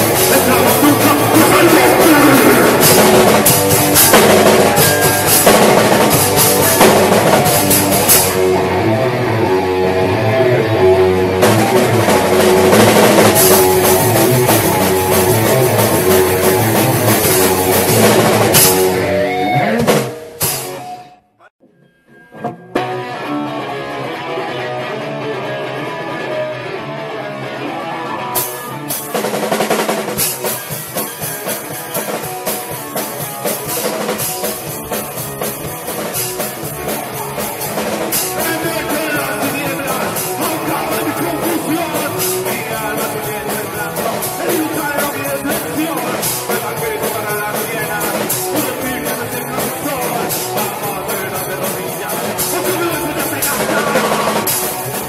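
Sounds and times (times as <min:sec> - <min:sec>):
electric guitar: 0:00.0 - 0:21.0, 0:22.1 - 0:55.0
rock band playing live: 0:00.0 - 0:21.2, 0:22.2 - 0:55.0
drum cymbal crashes: 0:19.9 - 0:21.1.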